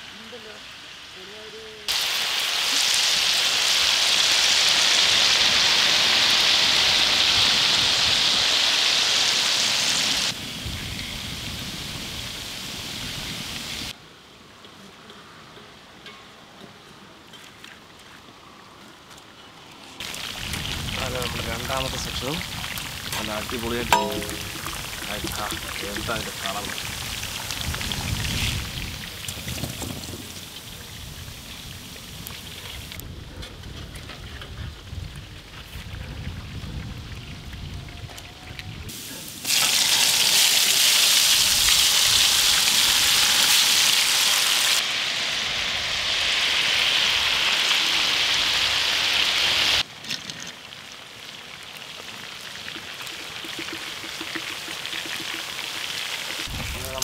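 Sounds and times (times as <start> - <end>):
fish deep-frying sizzle: 1.9 - 14.0, 20.0 - 33.0, 36.7 - 49.9, 50.5 - 57.0.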